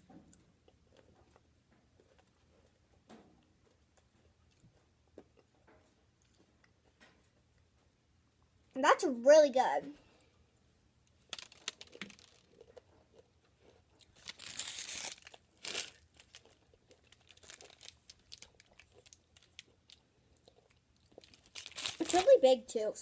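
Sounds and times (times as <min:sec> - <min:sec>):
crunchy chewing: 0:00.2 - 0:07.7, 0:11.2 - 0:22.1
plastic candy wrapper crinkling: 0:11.2 - 0:13.2, 0:14.0 - 0:22.7.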